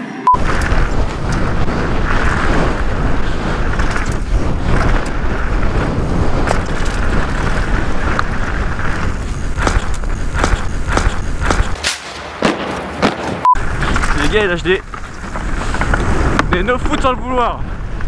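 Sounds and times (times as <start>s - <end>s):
tyres on loose dirt: 0.3s - 17.3s
wind rushing on microphone: 0.4s - 11.8s
bike rattling: 0.4s - 18.0s
sharp clacks from bike: 9.6s - 12.0s.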